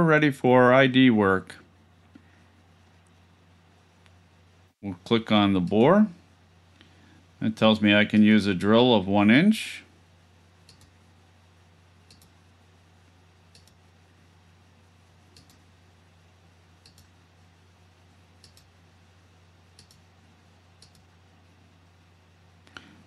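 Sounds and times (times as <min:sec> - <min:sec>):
low steady hum: 0:00.0 - 0:23.0
computer mouse clicks: 0:10.6 - 0:11.0, 0:12.0 - 0:12.4, 0:13.5 - 0:13.8, 0:15.3 - 0:15.6, 0:16.8 - 0:17.2, 0:18.4 - 0:18.7, 0:19.7 - 0:20.1, 0:20.8 - 0:21.1.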